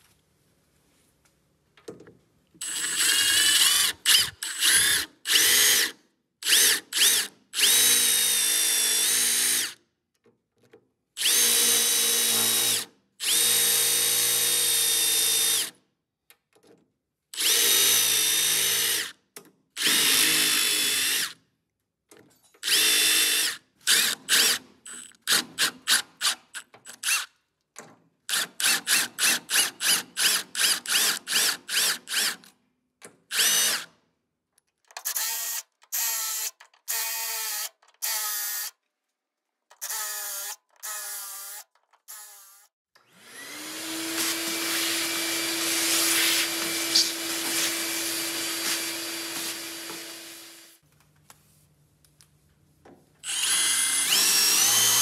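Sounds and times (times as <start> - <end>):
cordless drill boring into metal: 2.6 - 9.8, 11.2 - 15.8, 17.4 - 19.1, 19.8 - 21.4, 22.6 - 27.3, 28.3 - 32.5, 33.3 - 33.9, 35.0 - 38.7, 39.8 - 50.8, 53.2 - 55.0.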